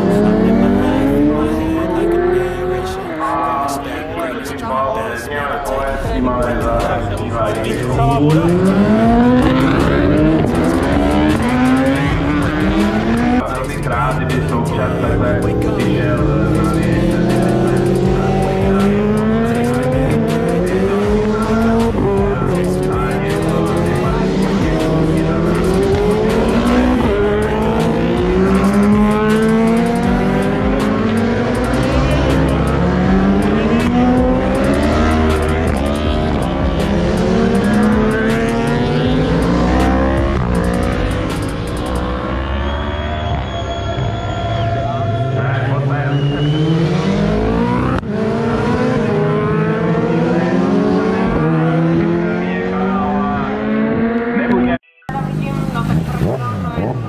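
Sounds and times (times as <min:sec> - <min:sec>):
motorcycles accelerating: 0:00.0 - 0:57.0.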